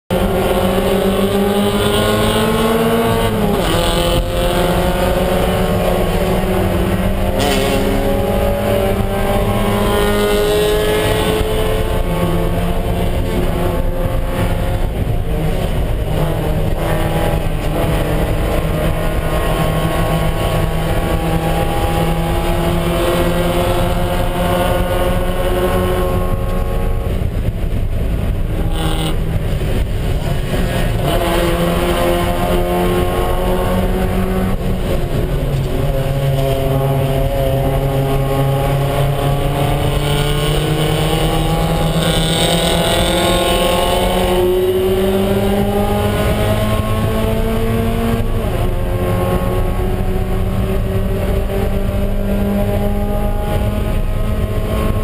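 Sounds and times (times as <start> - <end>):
race car engine accelerating: 0.1 - 55.0
road and wind noise: 0.1 - 55.0.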